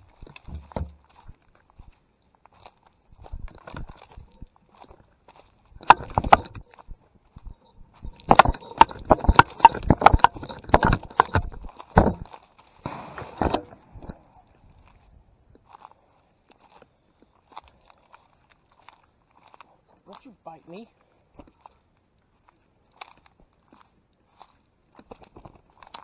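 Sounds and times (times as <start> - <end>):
sharp knocks and clicks: 0.2 - 1.0, 5.8 - 12.3.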